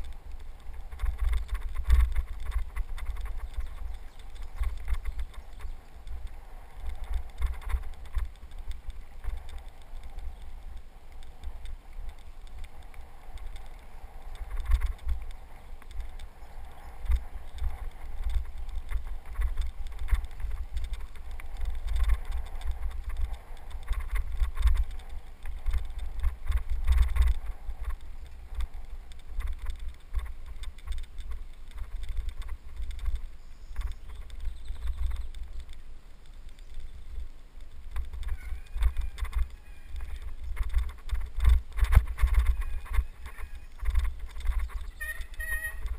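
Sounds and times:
bicycle rattling: 0.0s - 45.9s
wind buffeting microphone: 0.0s - 45.9s.

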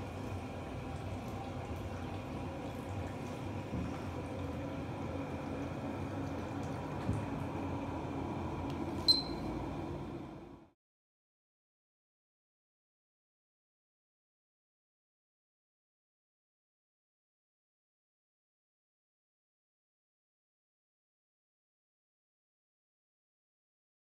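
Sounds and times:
faint hum: 0.0s - 10.8s.

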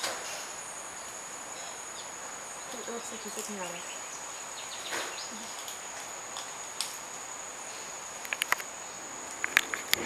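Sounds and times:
insect droning: 0.0s - 10.0s
sharp cracks: 4.8s - 7.1s, 8.2s - 8.7s.

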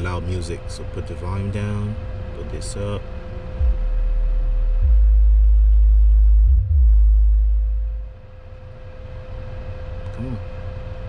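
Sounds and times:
subwoofer playing deep bass notes: 2.6s - 8.7s.

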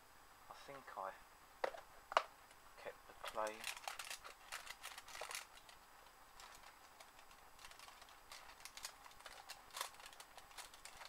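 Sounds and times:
light rustling of small items: 1.6s - 11.0s
small items clicking: 3.2s - 5.8s, 6.4s - 11.0s.

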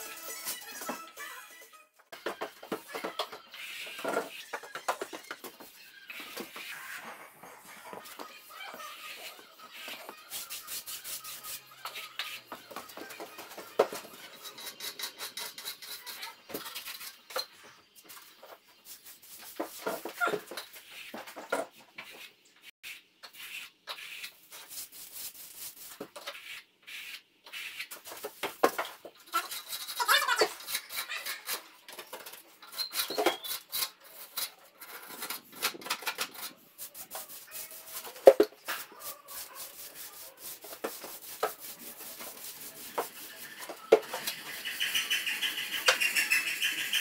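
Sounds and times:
trowel scraping and squeaking on wall: 0.0s - 47.0s.

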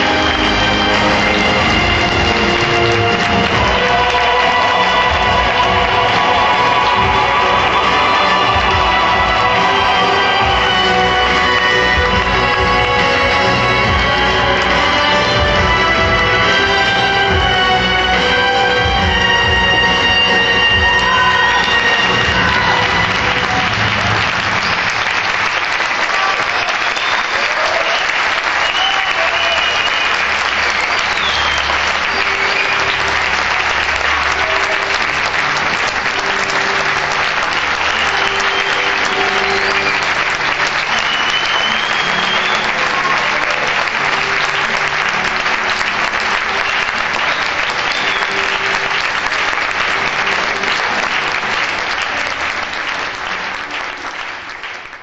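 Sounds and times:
audience applauding: 0.0s - 55.0s
audience calls: 0.0s - 55.0s
short whistles: 28.6s - 30.3s, 31.1s - 31.9s, 40.9s - 42.8s.

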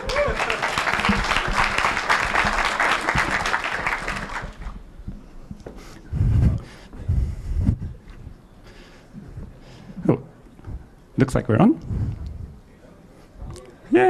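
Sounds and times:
audience applauding: 0.0s - 4.8s
dull low thumps: 4.8s - 8.4s.

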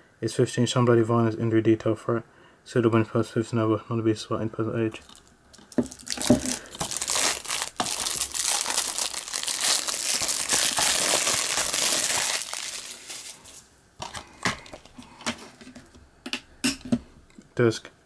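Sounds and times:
shrink wrap crinkling: 5.0s - 15.8s.

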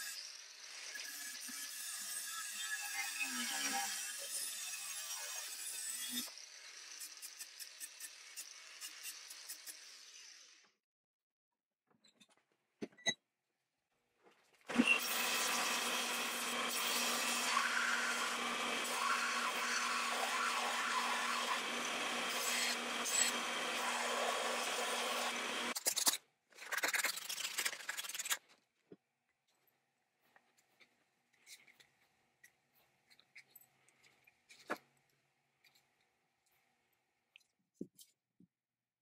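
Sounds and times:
belt sander grinding steel: 14.8s - 25.8s.

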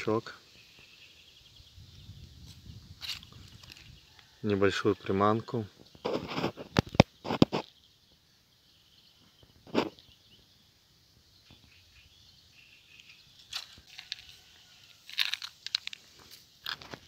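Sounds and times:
faint rustles: 5.8s - 7.8s.

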